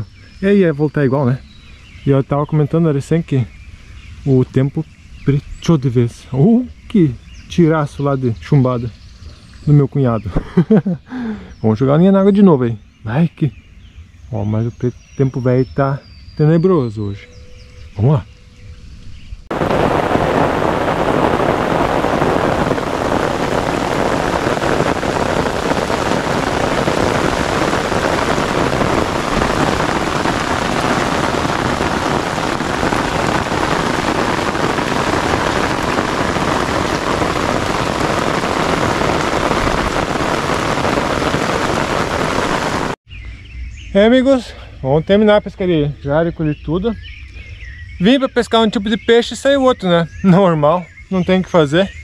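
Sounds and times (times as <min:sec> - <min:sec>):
heavy rain on water: 0:19.5 - 0:43.0.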